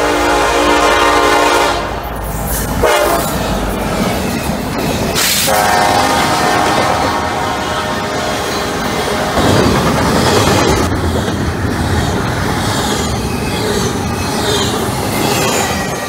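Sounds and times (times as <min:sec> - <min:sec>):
locomotive horn blowing: 0:00.0 - 0:02.1, 0:02.8 - 0:03.4, 0:05.2 - 0:09.4
train rumble and wheel clatter: 0:00.0 - 0:16.0.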